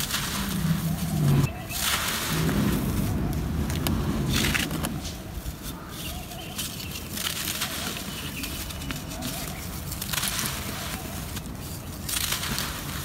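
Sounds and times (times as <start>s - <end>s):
dry clay crumbling in hands: 1.7s - 13.0s.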